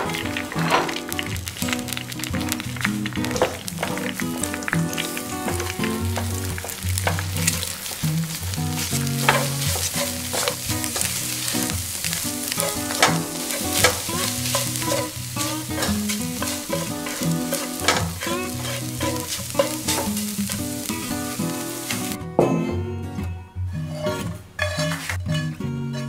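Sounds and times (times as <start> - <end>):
eggs sizzling in a frying pan: 0.0 - 22.2
spatula scraping a pan: 8.8 - 22.2, 23.8 - 26.0.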